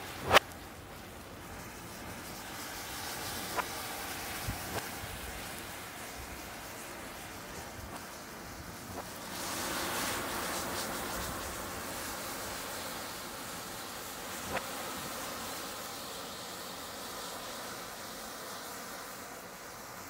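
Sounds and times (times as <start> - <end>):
burning matches hissing and crackling: 0.0 - 20.0
sharp pop: 0.2 - 0.6.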